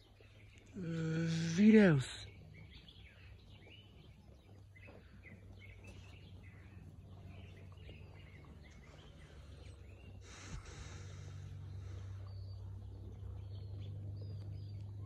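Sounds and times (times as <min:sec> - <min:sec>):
low steady hum: 0:00.0 - 0:15.0
small birds chirping: 0:00.0 - 0:15.0
rustling hiss with thump: 0:10.2 - 0:11.7.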